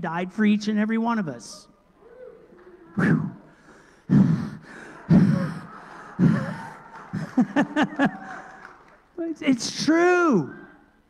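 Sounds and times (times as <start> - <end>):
man breathing heavily: 3.5 - 7.3
man chuckling: 5.0 - 8.4.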